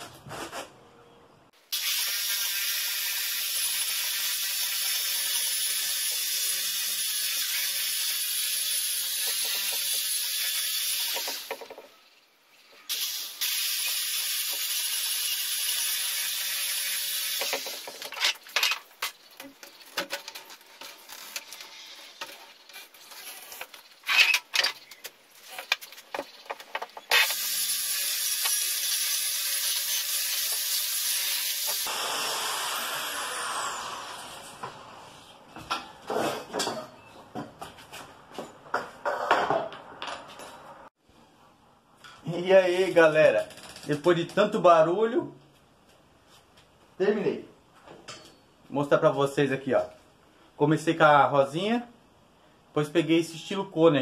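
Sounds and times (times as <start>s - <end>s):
electric drill grinding wood: 1.8s - 11.6s, 12.9s - 18.2s, 27.1s - 34.7s.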